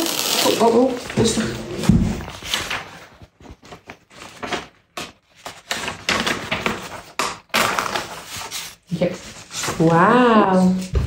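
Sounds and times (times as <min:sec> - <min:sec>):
drawing paper rustling: 0:00.0 - 0:11.0.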